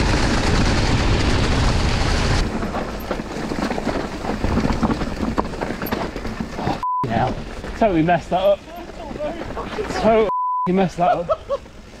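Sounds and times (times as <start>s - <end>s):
wind rush on microphone: 0.0s - 5.6s
tyres rumbling on ground: 0.0s - 12.0s
bike rattles and knocks: 2.4s - 10.2s.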